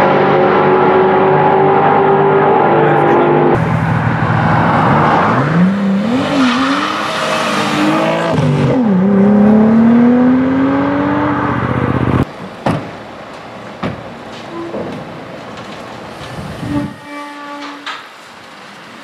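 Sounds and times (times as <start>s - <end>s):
car engine accelerating: 0.0s - 12.3s.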